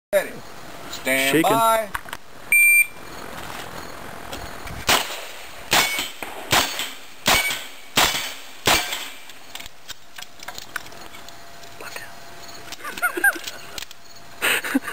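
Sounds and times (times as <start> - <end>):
shot timer beep: 2.5 - 3.0.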